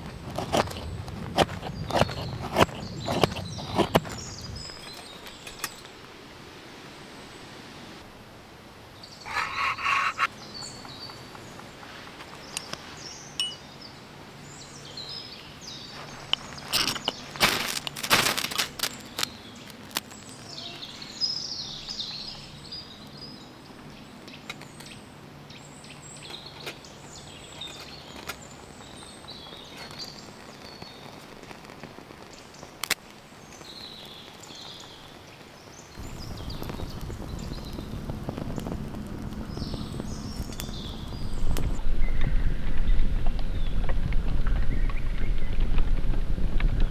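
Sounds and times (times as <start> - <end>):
birds chirping and singing: 9.0 - 11.6
twigs snapping in a fire: 16.2 - 20.4, 27.5 - 41.8
low rushing noise: 36.0 - 46.9.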